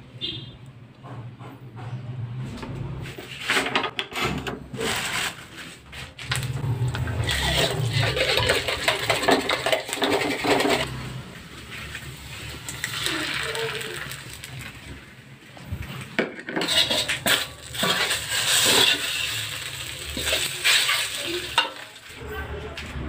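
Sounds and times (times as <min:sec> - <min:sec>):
oil sizzling in a wok: 0:06.4 - 0:15.2, 0:16.5 - 0:22.2.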